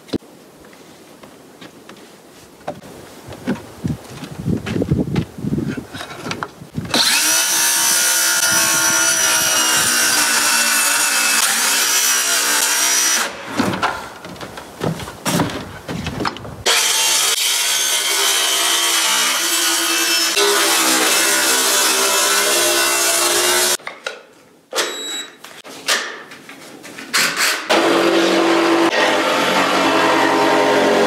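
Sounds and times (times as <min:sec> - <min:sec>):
wood knocking and being handled: 0:00.1 - 0:06.6, 0:13.5 - 0:16.6
electric power saw cutting wood: 0:06.9 - 0:13.4, 0:16.7 - 0:23.8, 0:27.4 - 0:31.0.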